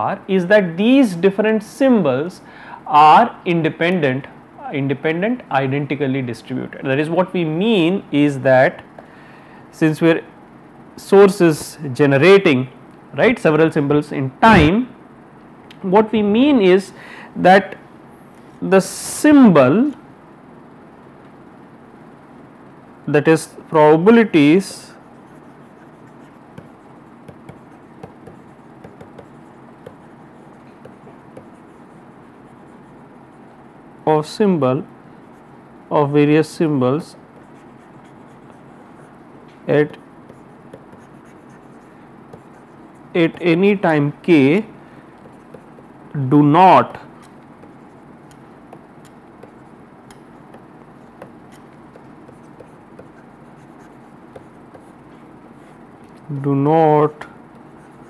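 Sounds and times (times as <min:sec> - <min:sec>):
faint steady hiss: 0:00.0 - 0:58.0
stylus tapping on tablet screen: 0:26.5 - 0:30.0, 0:30.8 - 0:31.6, 0:40.3 - 0:41.1, 0:45.2 - 0:45.9, 0:47.6 - 0:53.2.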